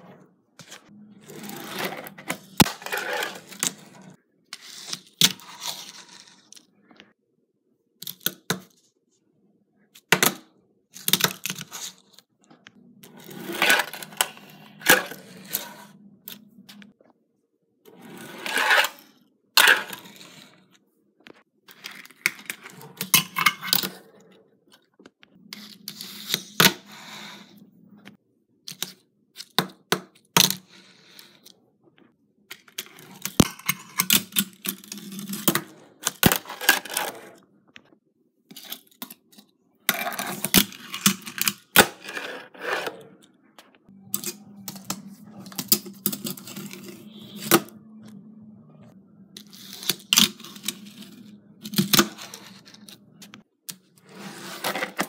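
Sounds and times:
small wheels rolling on tabletop: 1.2s - 4.2s, 17.9s - 19.0s.

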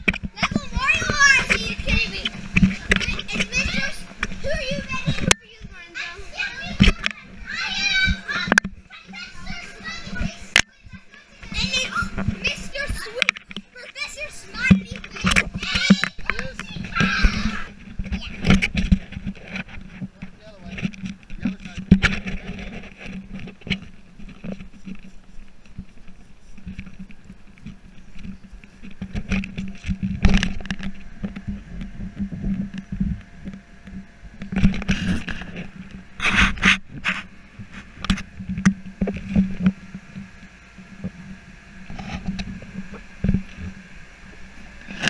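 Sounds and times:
camera handling rubbing and knocks: 0.0s - 5.4s, 14.7s - 17.0s, 17.6s - 40.3s
steady low hum: 0.0s - 45.0s.

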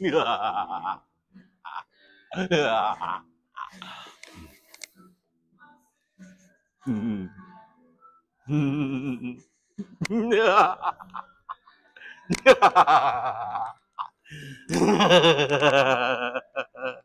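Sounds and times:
man laughing theatrically: 0.0s - 1.0s, 1.7s - 3.8s, 10.0s - 11.3s, 12.3s - 17.0s.

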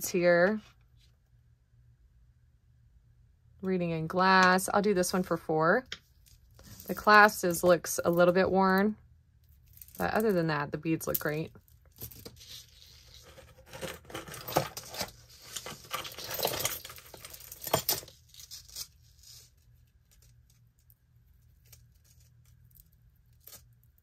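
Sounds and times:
metal chains clinking: 14.2s - 18.1s.

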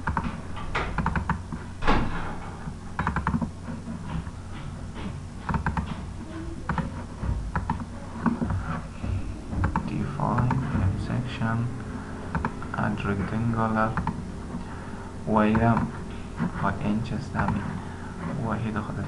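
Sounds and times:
computer clicking: 0.0s - 1.5s, 3.0s - 3.5s, 5.4s - 6.0s, 7.5s - 8.6s, 9.6s - 10.6s, 12.3s - 12.8s, 13.8s - 14.2s
low steady hum: 0.0s - 19.0s.

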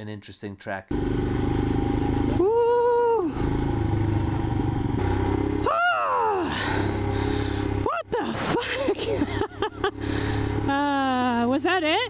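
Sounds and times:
motorcycle engine running: 0.9s - 12.0s
person whooping: 2.3s - 3.4s, 5.6s - 6.8s.

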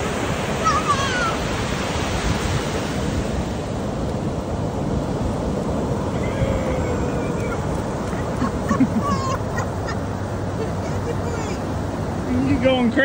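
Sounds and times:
waves breaking on a beach: 0.0s - 13.0s
high wavering cry: 6.0s - 11.6s.

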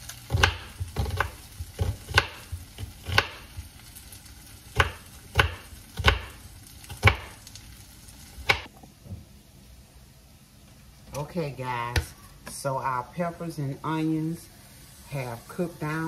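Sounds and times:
vegetables sizzling in a frying pan: 0.0s - 8.7s, 11.4s - 16.0s
knife chopping on cutting board: 0.3s - 3.6s, 4.7s - 7.4s.

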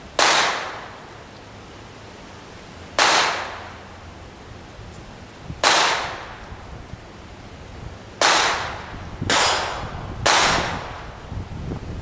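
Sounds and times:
pistol shot: 0.2s - 1.0s, 3.0s - 3.6s, 5.6s - 6.4s, 8.2s - 11.0s.

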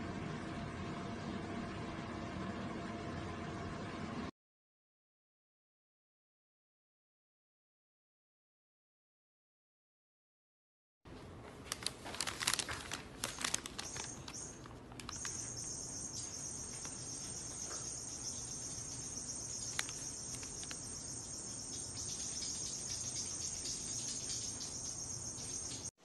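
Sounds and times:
paper bag crinkling: 11.6s - 15.8s, 19.5s - 20.9s
high-pitched shrill hum: 13.2s - 25.9s.

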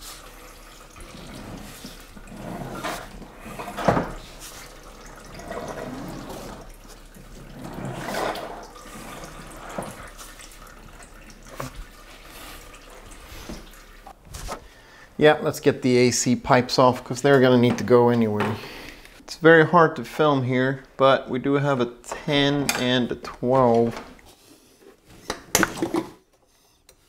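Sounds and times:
fluid trickling into plastic tub: 0.0s - 14.2s.

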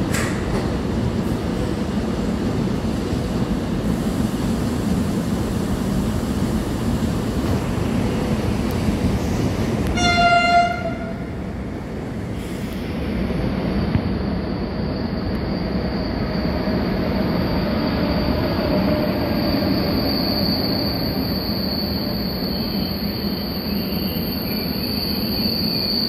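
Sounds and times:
electric train rumbling past: 0.0s - 26.0s
train horn blast: 9.8s - 11.3s.

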